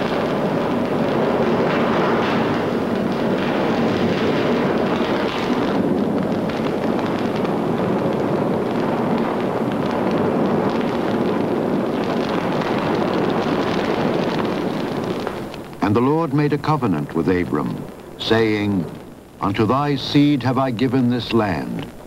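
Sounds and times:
faint crackling: 0.0s - 22.0s.

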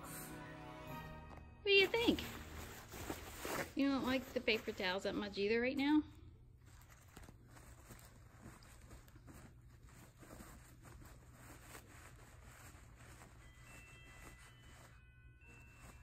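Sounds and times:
low room hum: 0.9s - 16.0s
paper rustling and crinkling: 1.8s - 5.3s, 6.5s - 16.0s.

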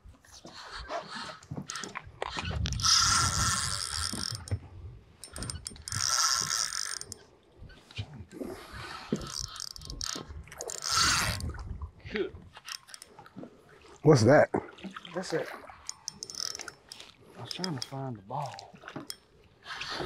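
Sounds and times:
fishing reel ratcheting and whirring: 1.2s - 4.6s, 5.2s - 7.2s, 9.1s - 11.6s, 12.6s - 13.2s, 15.8s - 18.0s.

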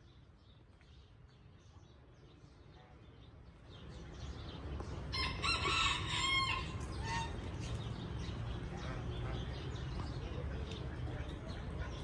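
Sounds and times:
small birds chirping: 0.0s - 12.0s
rooster crowing: 5.2s - 6.7s.

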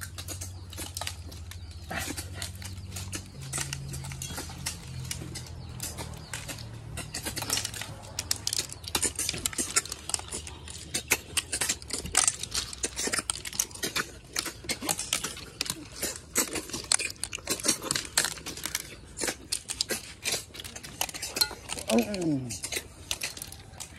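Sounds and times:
shells clinking on steel plates: 21.0s - 23.6s.

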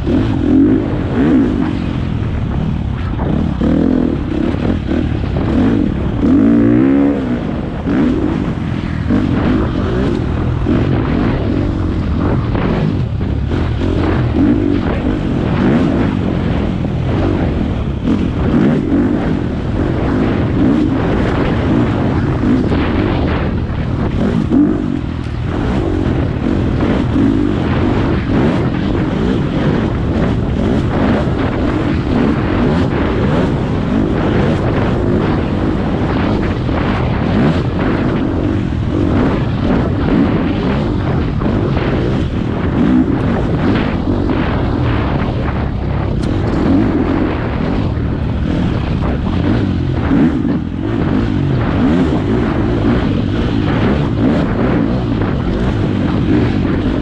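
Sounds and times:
dirt bike engine revving: 0.0s - 57.0s.

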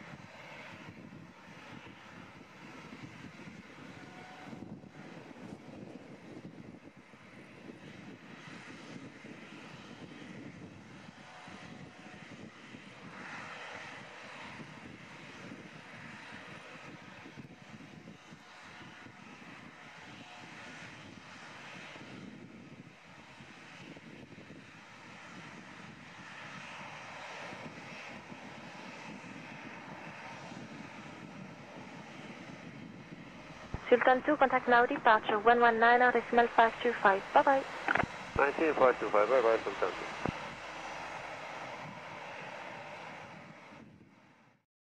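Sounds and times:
jet engines at takeoff power: 0.0s - 44.6s
jet engines rumbling: 26.5s - 44.0s.

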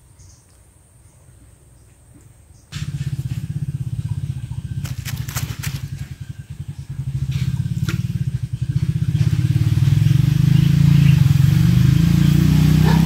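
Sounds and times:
small engine pulsing: 2.7s - 13.0s.

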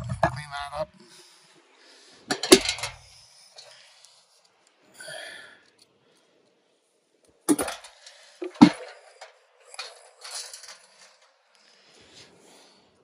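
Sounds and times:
scraping and rummaging: 2.3s - 3.0s, 7.5s - 11.4s
metal tools clanking on steel: 2.3s - 3.7s, 7.5s - 11.4s.

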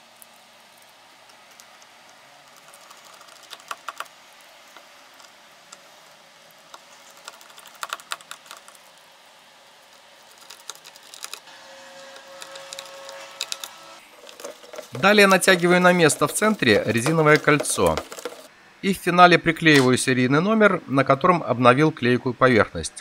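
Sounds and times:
screwdriver clicking on screws: 12.4s - 14.8s.

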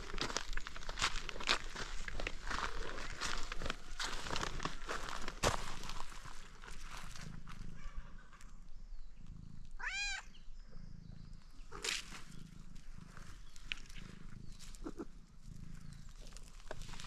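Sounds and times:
rustle of dry leaves and gravel: 0.0s - 8.7s, 11.6s - 17.0s
cat purring: 6.0s - 17.0s
cat meowing: 9.8s - 10.4s.

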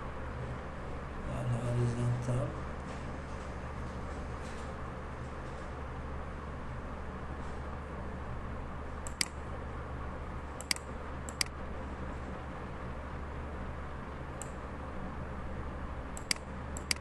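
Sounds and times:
low hum and hiss: 0.0s - 17.0s
computer mouse clicks: 9.0s - 9.4s, 10.6s - 11.5s, 16.2s - 17.0s.

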